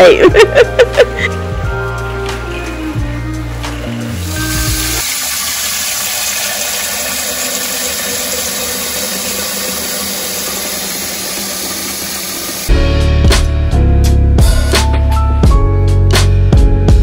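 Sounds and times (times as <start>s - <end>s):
faucet water splashing into pot: 2.0s - 12.7s.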